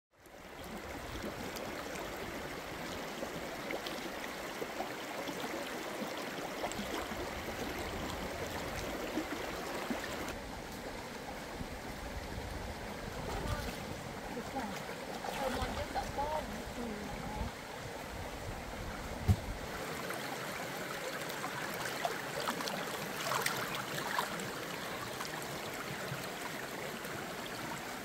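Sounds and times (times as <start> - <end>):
stream babbling over rocks: 0.2 - 28.0.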